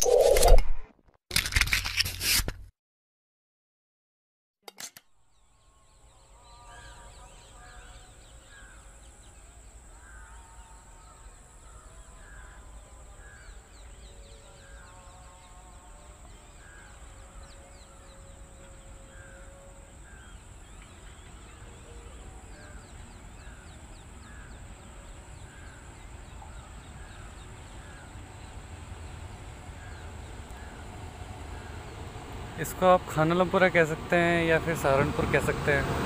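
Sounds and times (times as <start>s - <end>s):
crows cawing: 10.0s - 10.4s, 24.2s - 24.6s, 29.8s - 30.9s
freight train rumble: 15.8s - 36.0s.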